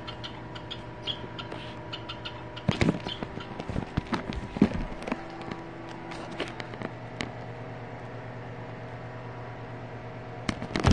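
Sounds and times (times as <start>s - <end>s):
steady low hum: 0.0s - 10.9s
sharp handling clicks and knocks: 2.6s - 7.4s.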